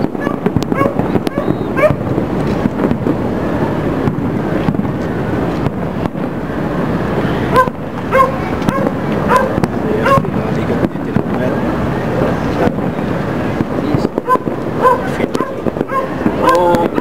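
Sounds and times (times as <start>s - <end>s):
distant fireworks popping and booming: 0.0s - 17.0s
dog barking: 0.2s - 2.0s, 7.5s - 10.3s, 14.2s - 16.6s.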